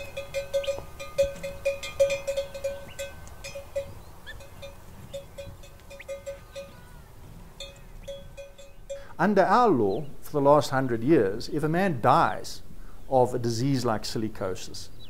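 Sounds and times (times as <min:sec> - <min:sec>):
bell clanking: 0:00.0 - 0:07.0, 0:07.6 - 0:09.1.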